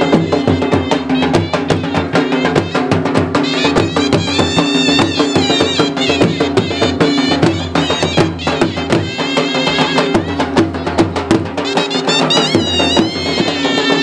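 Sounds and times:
fast drumbeats: 0.0s - 14.0s
high wavering melody: 11.6s - 14.0s.

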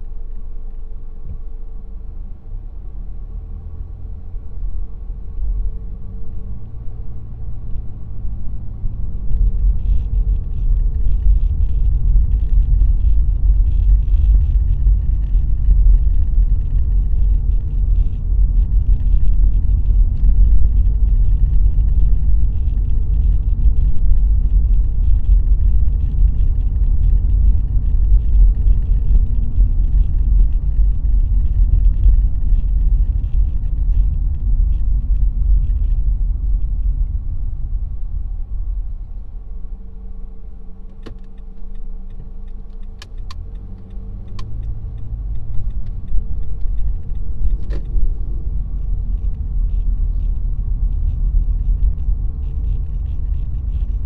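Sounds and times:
car road and engine rumble: 0.0s - 54.0s
sharp clicks: 40.9s - 50.0s.

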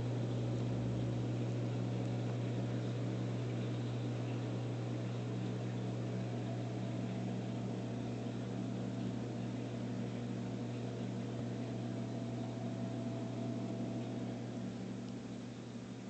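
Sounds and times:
pump humming: 0.0s - 16.0s.

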